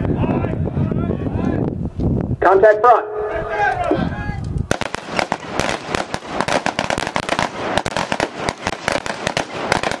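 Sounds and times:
rapid rifle shots: 0:04.7 - 0:10.0.

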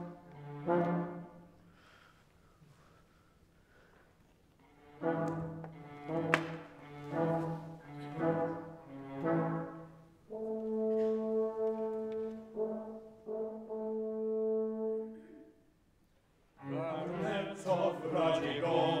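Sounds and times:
orchestra playing dramatic music: 0:00.0 - 0:01.6, 0:04.8 - 0:15.4, 0:16.6 - 0:19.0
held brass chords: 0:00.0 - 0:01.7, 0:04.8 - 0:15.7, 0:16.6 - 0:19.0.

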